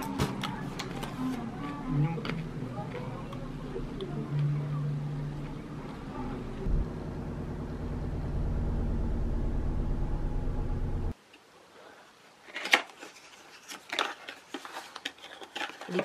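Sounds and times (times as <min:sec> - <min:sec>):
low hum: 0:01.4 - 0:11.2.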